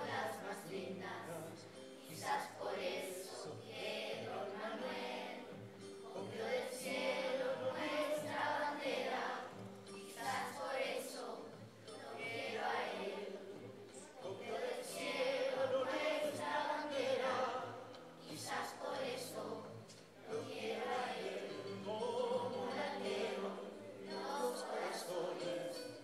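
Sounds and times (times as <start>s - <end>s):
children's choir singing: 0.0s - 26.0s.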